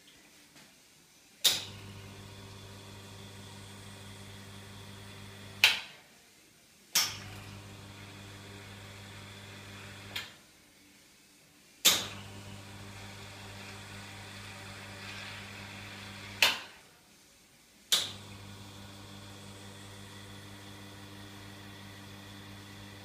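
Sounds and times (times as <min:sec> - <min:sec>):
espresso machine pump humming: 0:01.7 - 0:05.6, 0:07.2 - 0:10.2, 0:12.1 - 0:16.4, 0:18.1 - 0:23.0.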